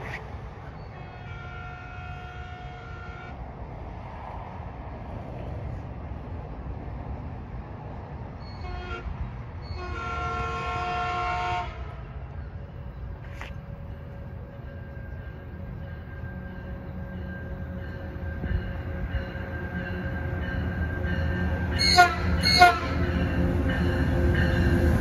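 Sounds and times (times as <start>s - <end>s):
low train rumble: 0.0s - 25.0s
train air horn blasts: 0.9s - 3.4s, 8.6s - 12.2s, 21.8s - 23.1s.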